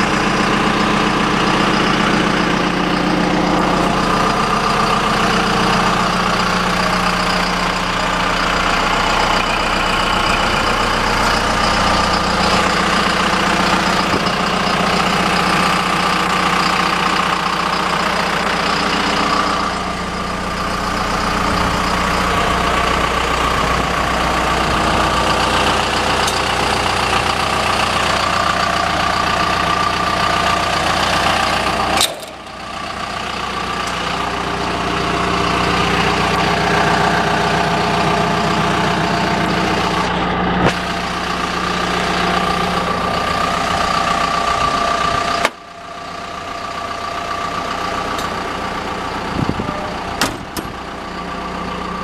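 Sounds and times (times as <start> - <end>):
excavator diesel engine running: 0.0 - 52.0.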